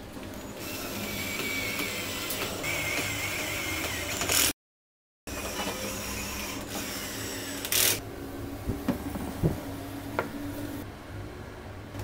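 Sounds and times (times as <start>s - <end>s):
steady hum: 5.3s - 12.0s.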